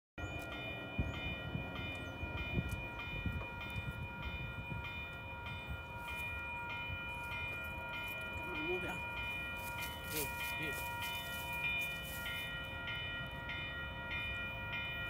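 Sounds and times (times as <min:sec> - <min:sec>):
railroad crossing bell ringing: 0:00.2 - 0:15.0.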